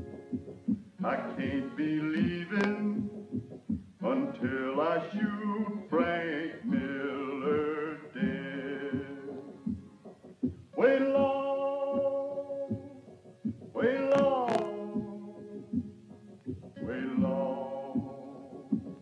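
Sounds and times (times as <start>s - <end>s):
man singing a slow ballad: 1.0s - 3.2s, 4.0s - 9.6s, 10.7s - 13.1s, 13.7s - 15.8s, 16.8s - 19.0s.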